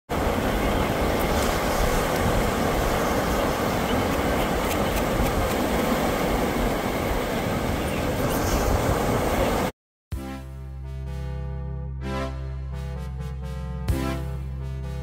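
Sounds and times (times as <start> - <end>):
sea waves breaking on pebbles: 0.2 - 3.8.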